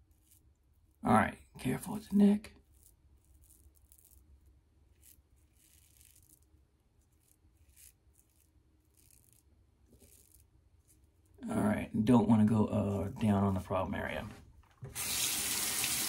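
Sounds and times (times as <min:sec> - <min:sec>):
razor scraping stubble: 0:02.6 - 0:11.4.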